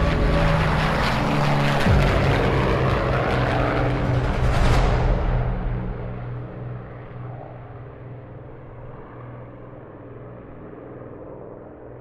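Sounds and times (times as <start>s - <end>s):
propeller aircraft engines droning: 0.0s - 12.0s.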